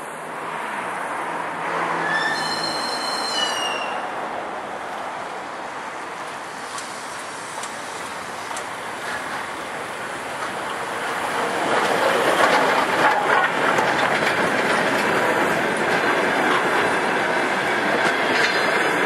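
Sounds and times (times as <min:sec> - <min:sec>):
steam locomotive rushing: 0:00.0 - 0:19.0
high-pitched multi-tone squeal: 0:01.9 - 0:04.2.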